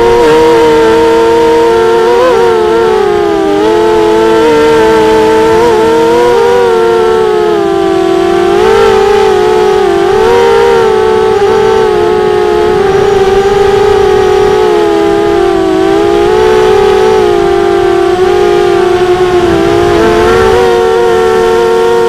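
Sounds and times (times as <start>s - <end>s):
quadcopter motors whining: 0.0s - 22.0s.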